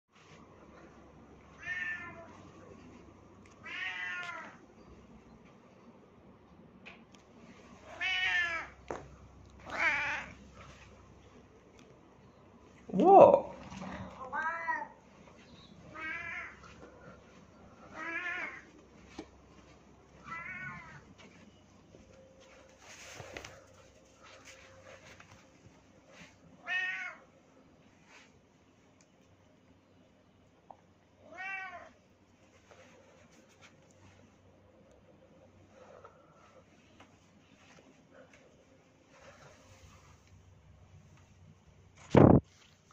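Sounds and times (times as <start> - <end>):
cat meowing: 1.6 - 2.3, 3.6 - 4.6, 9.6 - 10.4, 14.2 - 15.0, 15.9 - 16.6, 17.9 - 18.7, 20.2 - 21.0, 26.6 - 27.2, 31.3 - 32.0
faint rustle: 7.2 - 12.9, 13.6 - 27.2, 32.2 - 34.5, 35.6 - 42.9.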